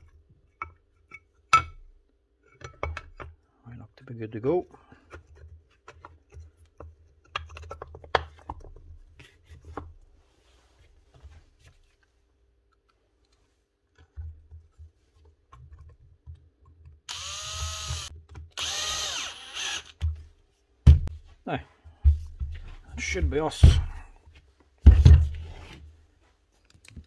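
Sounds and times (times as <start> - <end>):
parts clicking and knocking: 2.5 - 3.4, 5.0 - 8.9
drill-driver whirring: 17.1 - 20.0.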